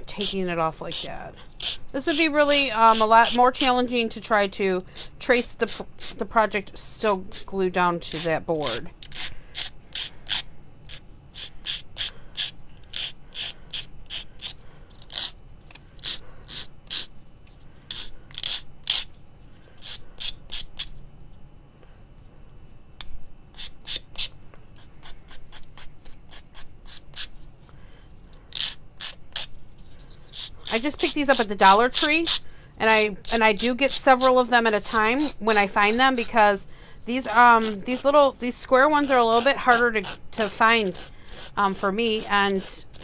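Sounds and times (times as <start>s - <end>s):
sanding stick rubbing wood: 30.3s - 36.4s.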